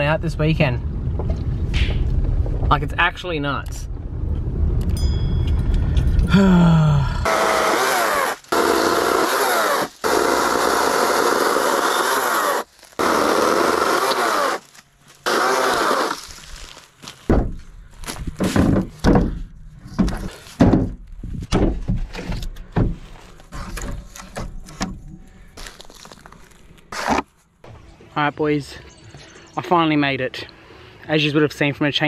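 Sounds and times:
chainsaw cutting wood: 0:07.2 - 0:16.4
wood knocking and thudding: 0:17.2 - 0:25.0.

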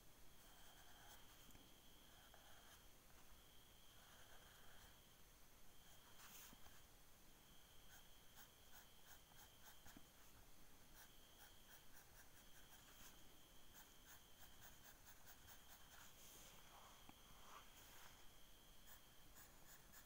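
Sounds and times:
pencil scratching on paper: 0:00.4 - 0:02.9, 0:03.9 - 0:05.0, 0:05.8 - 0:06.9, 0:07.8 - 0:16.6, 0:18.8 - 0:20.0.

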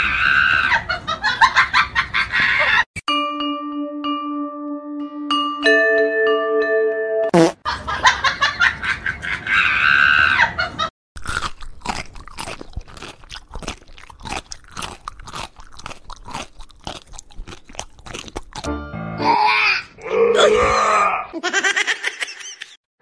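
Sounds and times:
cat chewing with crunching clicks: 0:11.3 - 0:18.7.

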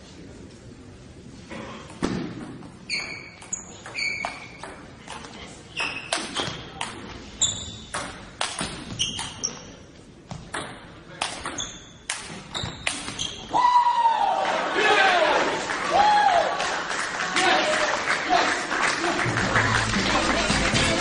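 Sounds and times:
short high-pitched squeaks: 0:02.9 - 0:04.6, 0:07.4 - 0:07.9, 0:09.0 - 0:09.8, 0:11.5 - 0:13.5.

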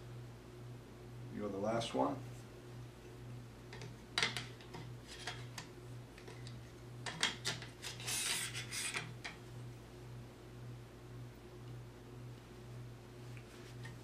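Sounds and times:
steady low hum: 0:00.0 - 0:14.0
metal scraping rub: 0:07.8 - 0:09.2.

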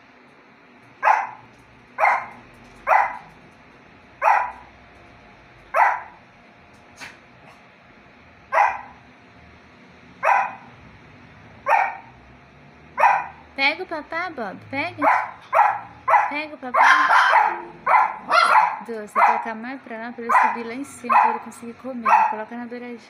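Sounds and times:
small dog barking: 0:01.0 - 0:03.3, 0:04.2 - 0:04.7, 0:05.7 - 0:06.2, 0:08.5 - 0:09.0, 0:10.2 - 0:10.7, 0:11.6 - 0:12.1, 0:13.0 - 0:13.4, 0:15.0 - 0:19.5, 0:20.3 - 0:22.5.

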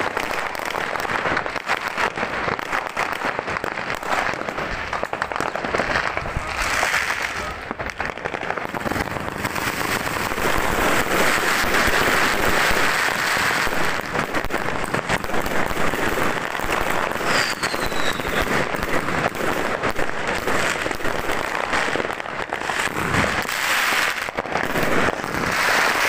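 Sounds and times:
firecrackers crackling: 0:00.0 - 0:26.0
falling firework whistle: 0:17.2 - 0:18.7.

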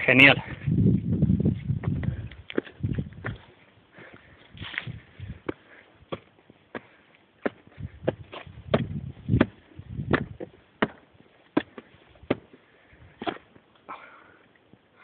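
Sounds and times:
low microphone rumble: 0:00.0 - 0:03.4, 0:07.8 - 0:10.4
footsteps on stone steps: 0:00.4 - 0:13.8.

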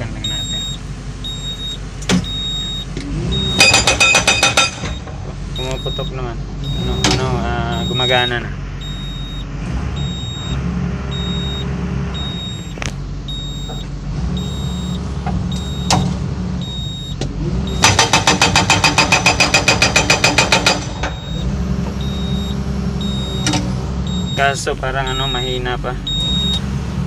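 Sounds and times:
excavator engine running: 0:00.0 - 0:27.0
faint repeated beep: 0:00.2 - 0:16.0, 0:16.6 - 0:26.6
hydraulic breaker hammer blows: 0:03.6 - 0:05.1, 0:17.7 - 0:21.4.

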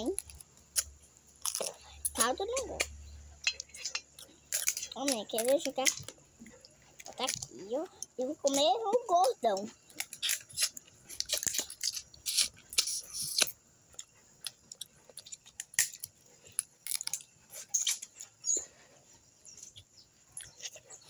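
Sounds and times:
chewing: 0:00.0 - 0:21.0
crab shell cracking: 0:09.8 - 0:13.6, 0:14.4 - 0:18.1.

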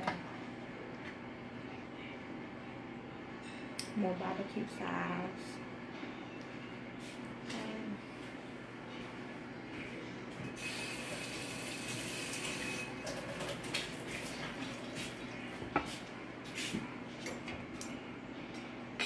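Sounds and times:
running water: 0:10.6 - 0:15.6.

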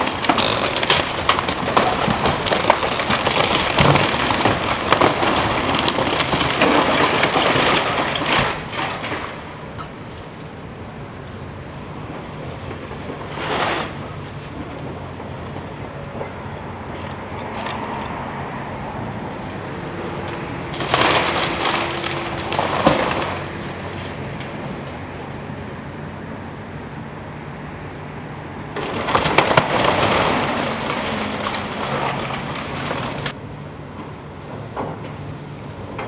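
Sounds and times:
timber cracking and splintering: 0:00.0 - 0:10.5, 0:20.2 - 0:25.1, 0:28.8 - 0:33.4
debris crashing: 0:00.0 - 0:10.6, 0:20.3 - 0:25.2, 0:28.8 - 0:33.4.

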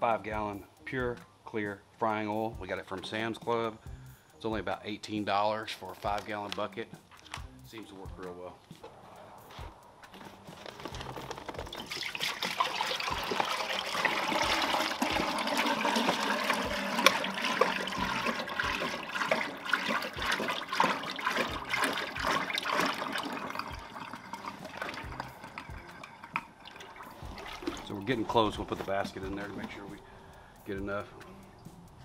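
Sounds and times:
oil pouring into metal tank: 0:10.8 - 0:30.0.

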